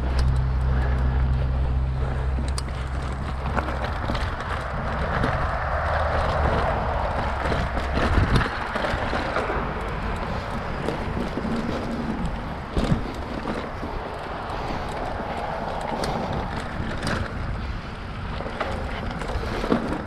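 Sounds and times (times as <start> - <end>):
bike clicks and rattles: 0.0 - 20.0
bike tyre noise on dirt: 0.0 - 20.0
wind rumbling on microphone: 0.0 - 20.0.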